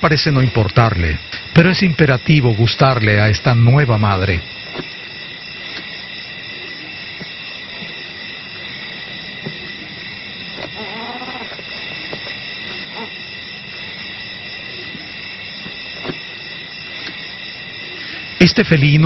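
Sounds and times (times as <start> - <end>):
night insect chorus: 0.0 - 19.0
wavering animal call: 8.0 - 15.3.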